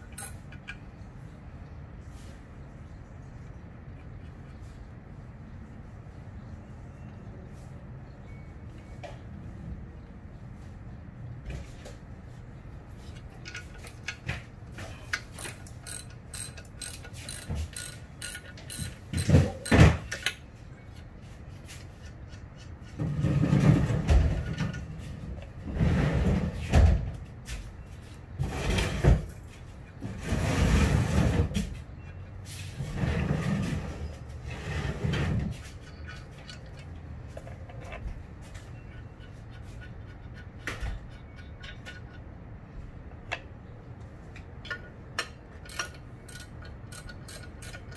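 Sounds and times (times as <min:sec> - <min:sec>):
rough scraping on metal: 0:29.9 - 0:42.4.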